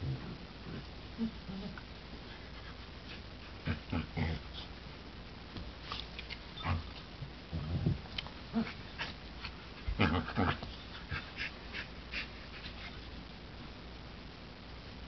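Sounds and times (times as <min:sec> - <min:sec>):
dogs play growling: 0:00.0 - 0:04.8, 0:06.0 - 0:13.1.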